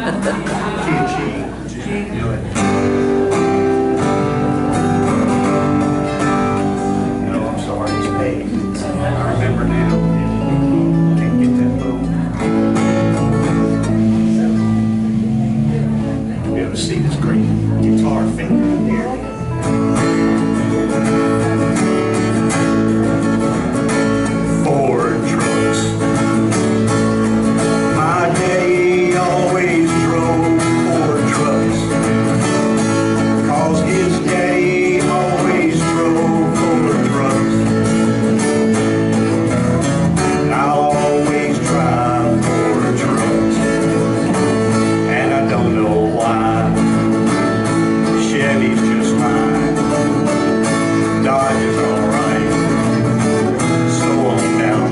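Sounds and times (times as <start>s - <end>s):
other guitars playing: 0.0s - 54.9s
strummed acoustic guitar: 0.0s - 54.9s
man singing: 16.4s - 19.2s, 24.2s - 54.9s.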